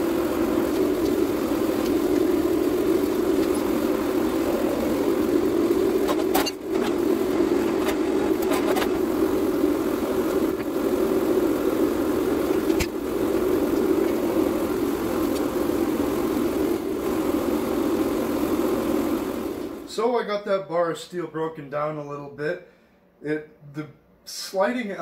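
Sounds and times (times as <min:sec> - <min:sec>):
machine drone: 0:00.0 - 0:20.0.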